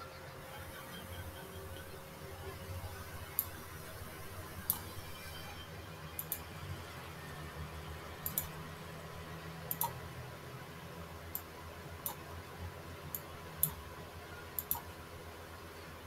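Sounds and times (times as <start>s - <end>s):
low steady hum: 0.0s - 16.0s
computer mouse clicking: 6.2s - 6.4s, 8.2s - 8.6s, 9.7s - 10.0s, 13.1s - 13.8s, 14.6s - 14.9s.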